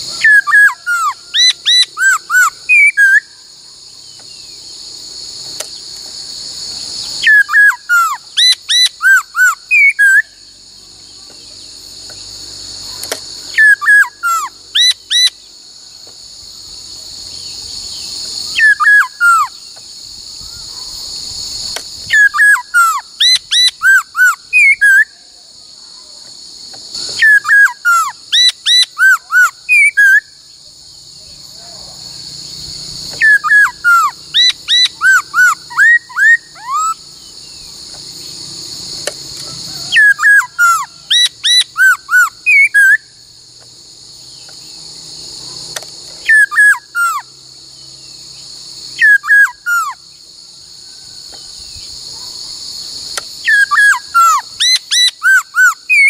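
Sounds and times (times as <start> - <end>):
bird whistling song: 0.0 - 4.6, 7.0 - 10.5, 13.0 - 15.5, 17.9 - 25.2, 27.0 - 30.4, 33.1 - 37.7, 39.8 - 43.2, 46.2 - 47.3, 49.0 - 50.0, 53.4 - 56.0
insect-like chirring: 0.0 - 56.0.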